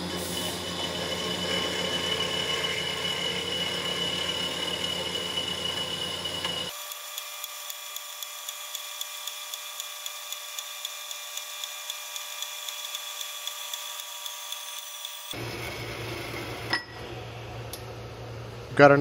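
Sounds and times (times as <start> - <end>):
low machine hum: 0.0 - 6.7
band saw whine cutting metal: 0.0 - 7.4, 11.4 - 17.3.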